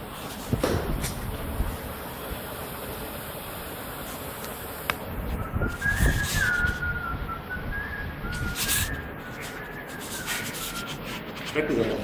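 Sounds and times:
person whistling a tune: 0:05.4 - 0:11.1.

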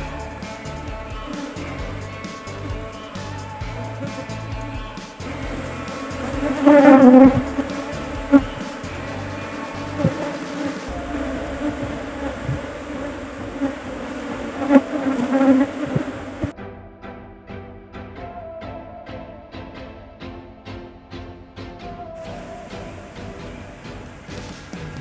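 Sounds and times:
bees buzzing: 0:00.0 - 0:16.5.

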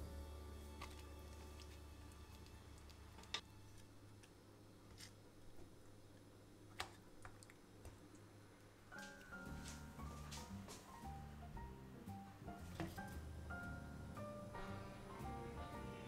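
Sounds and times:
soft music: 0:00.0 - 0:04.2, 0:08.9 - 0:16.0.

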